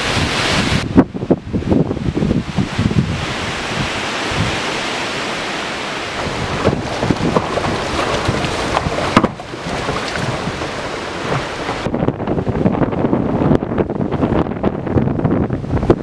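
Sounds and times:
gusty wind buffeting microphone: 0.0 - 5.2, 5.8 - 16.0
waves splashing against dock: 2.6 - 12.9.

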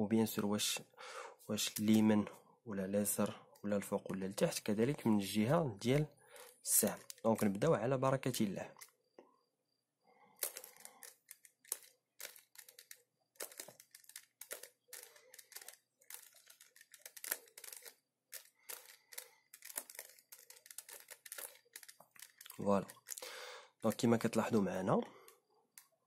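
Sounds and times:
puzzle cube plastic clicks: 5.9 - 7.7, 10.4 - 26.0.

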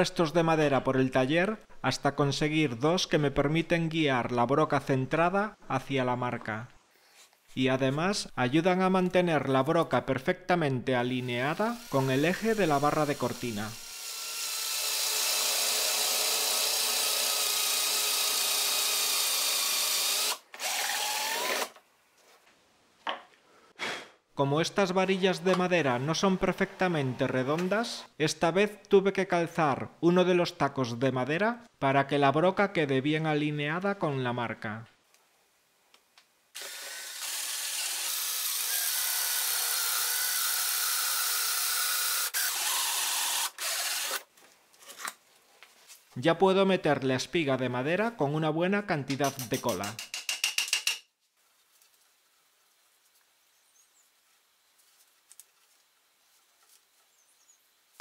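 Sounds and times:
power drill boring into wood: 11.5 - 21.8, 36.6 - 44.3.

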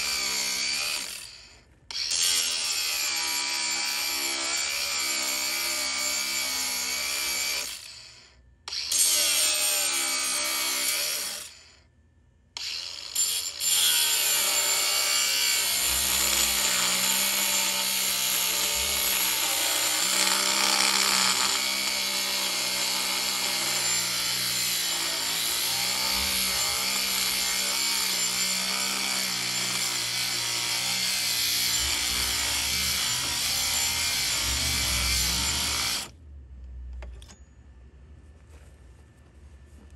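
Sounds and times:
power tool motor running: 12.6 - 36.1.

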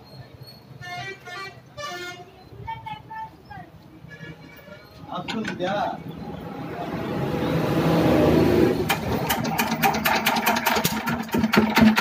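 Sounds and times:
diesel engine cranking knocks: 5.2 - 5.8, 8.6 - 12.0
engine whirr spinning up: 6.0 - 10.8.

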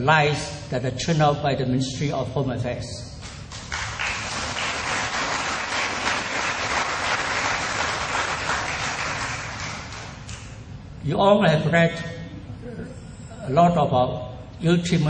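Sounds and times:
audience applauding: 3.5 - 10.5.

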